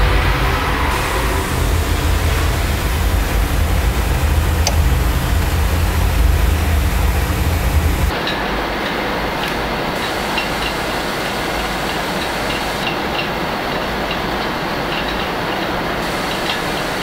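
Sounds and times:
boiler burner roaring: 0.0 - 17.0
sharp tick: 4.6 - 5.0.

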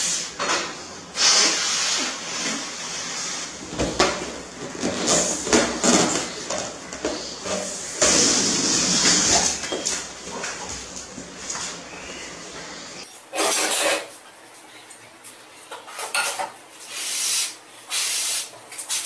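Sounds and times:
air hissing out of a balloon: 0.0 - 3.6, 7.1 - 9.6, 16.8 - 19.0.

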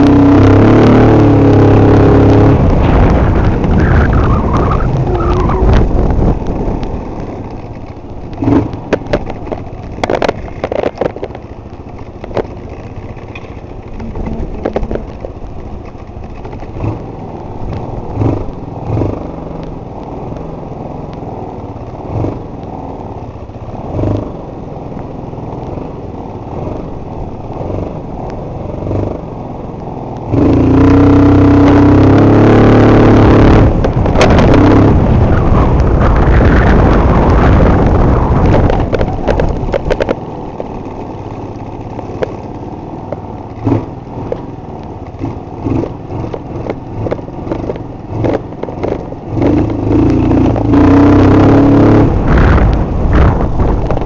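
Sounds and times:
scooter engine running: 2.6 - 30.6, 33.6 - 51.4
knocks and clatter: 5.7 - 17.0, 38.4 - 42.5.

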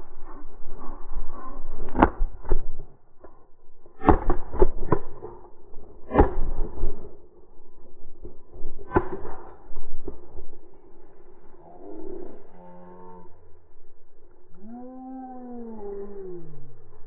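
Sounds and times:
shotgun bang: 4.0 - 5.5, 6.1 - 7.0, 8.8 - 10.1.

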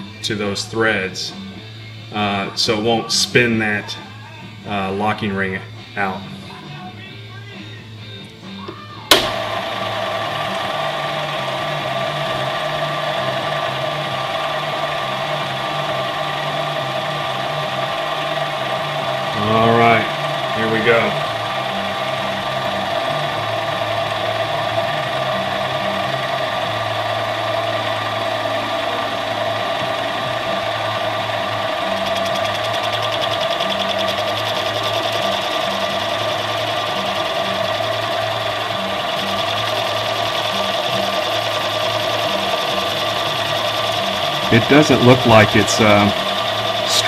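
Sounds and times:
lathe motor humming and whining: 8.2 - 47.0
cutting tool rasping metal: 31.5 - 47.0.

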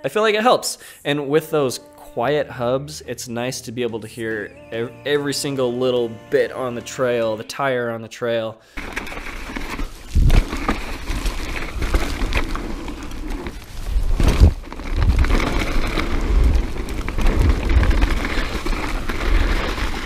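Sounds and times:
bike rattling: 8.8 - 20.0
bike tyres crunching over dirt: 8.8 - 20.0.

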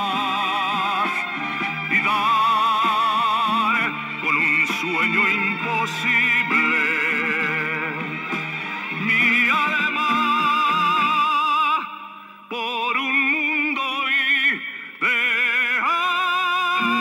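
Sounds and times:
man singing high notes: 0.0 - 1.3, 9.0 - 17.0.

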